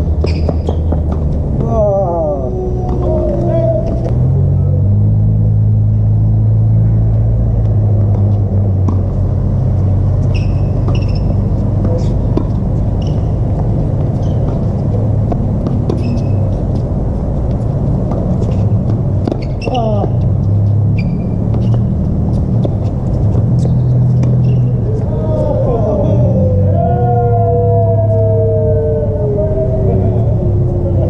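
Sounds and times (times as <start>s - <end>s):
sneakers squeaking: 0.1s - 1.5s, 8.0s - 25.6s
loud steady low hum: 1.3s - 19.4s
tennis ball struck: 10.3s - 14.7s.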